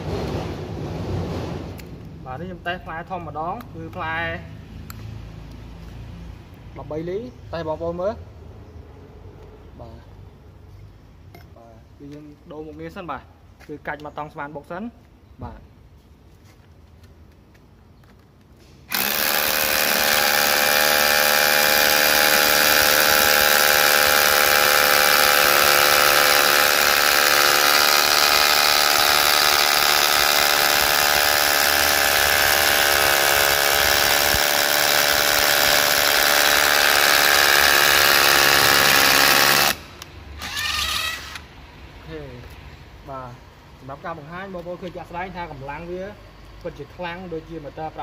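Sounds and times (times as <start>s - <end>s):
rotary hammer drilling concrete: 18.9s - 41.5s.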